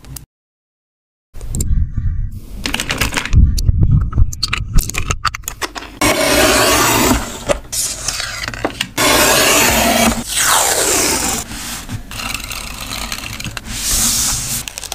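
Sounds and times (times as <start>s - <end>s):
paper trimmer scraping over paper: 6.0s - 14.6s.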